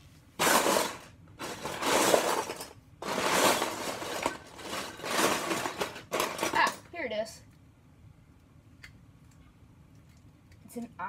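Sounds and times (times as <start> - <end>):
plastic pieces clattering: 0.4 - 6.9.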